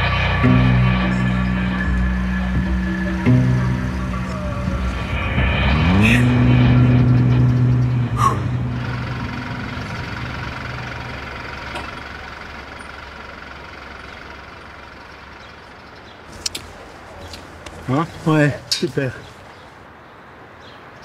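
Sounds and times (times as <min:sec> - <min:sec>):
diesel engine at high revs: 0:00.0 - 0:19.1.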